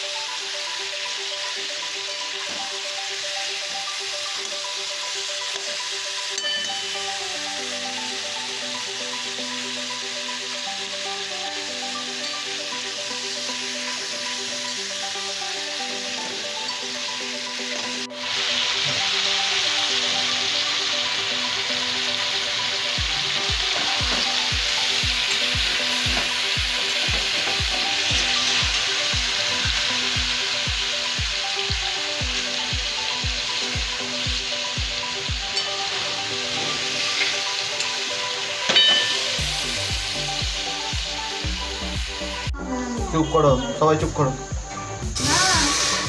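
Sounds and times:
meat sizzling in oil: 0.0 - 42.5, 45.1 - 46.0
spatula clink: 6.4 - 7.0, 38.7 - 39.4.

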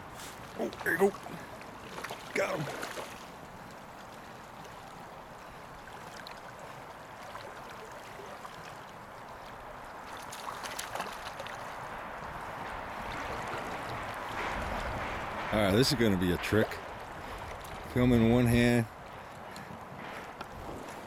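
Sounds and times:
river current rushing: 0.0 - 21.0
wind on microphone: 11.4 - 21.0
faint clicks: 19.1 - 20.6.

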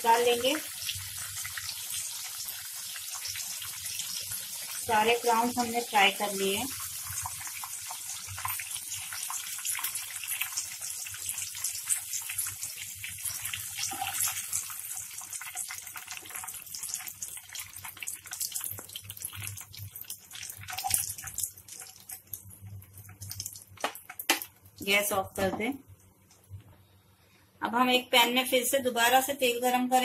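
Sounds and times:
prawns sizzling in hot oil: 0.0 - 25.2.

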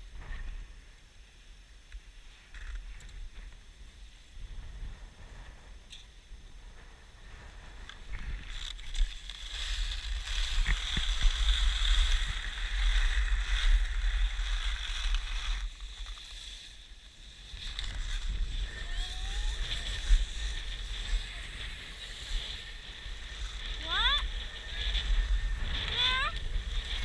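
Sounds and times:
skis sliding on packed snow: 7.1 - 27.0
wind buffeting microphone: 17.4 - 27.0.

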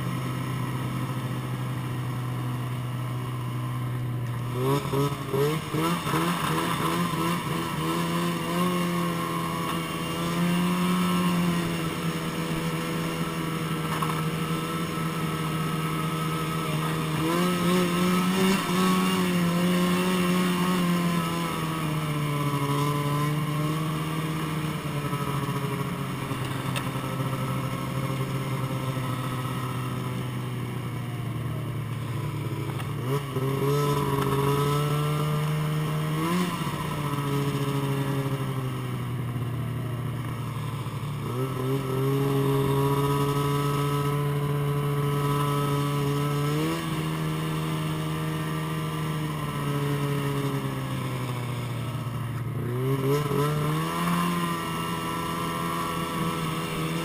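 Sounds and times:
snowmobile engine: 0.0 - 57.0.

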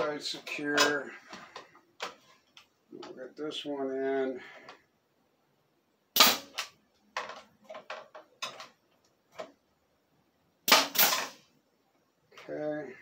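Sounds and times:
nail gun shot with air puff: 6.2 - 6.7, 10.7 - 11.4.

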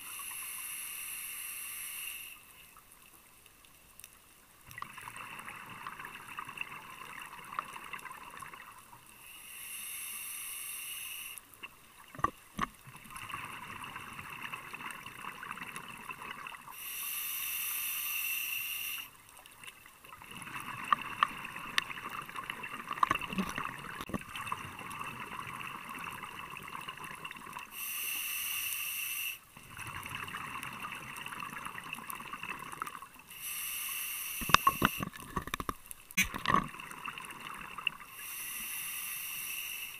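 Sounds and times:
crackle of small clicks: 2.2 - 9.2, 11.3 - 16.7, 18.4 - 27.7, 29.6 - 33.3, 34.3 - 38.2.

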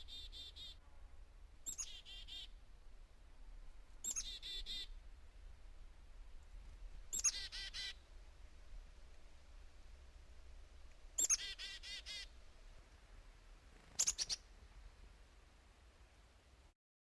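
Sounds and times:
chickadee calling: 0.0 - 0.8, 1.6 - 2.6, 4.0 - 5.0, 7.1 - 8.0, 11.2 - 12.3, 13.9 - 14.5.

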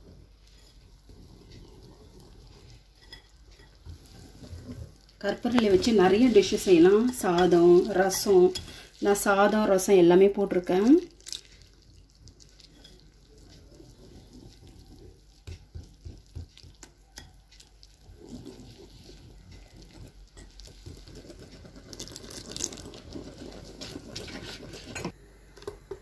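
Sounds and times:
batter sloshing: 0.0 - 25.2
whisk wires clicking on bowl: 1.5 - 11.0.

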